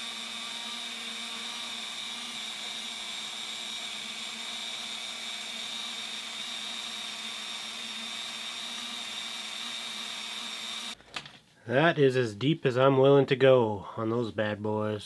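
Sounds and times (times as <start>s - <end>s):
rotary tool grinding metal: 0.0s - 11.0s.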